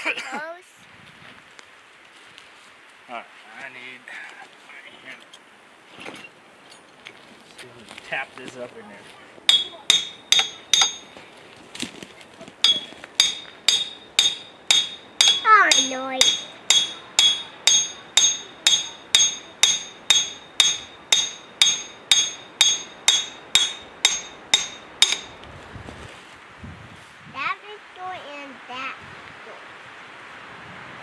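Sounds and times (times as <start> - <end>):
hammer striking metal: 9.5 - 11.3, 12.6 - 25.4.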